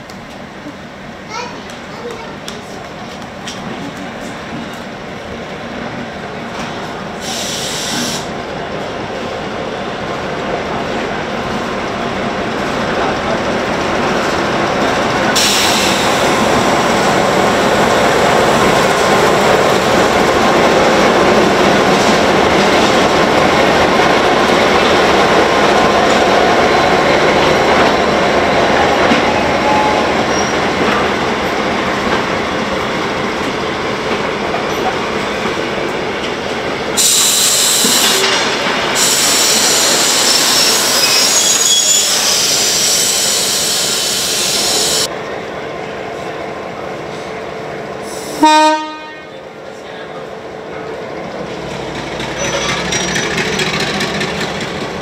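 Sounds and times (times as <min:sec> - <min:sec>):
train wheels on rails: 0:00.0 - 0:48.4, 0:49.6 - 0:55.0
diesel locomotive engine: 0:00.0 - 0:55.0
short air hisses: 0:07.2 - 0:08.3, 0:15.4 - 0:16.4, 0:37.0 - 0:38.2, 0:39.0 - 0:45.1.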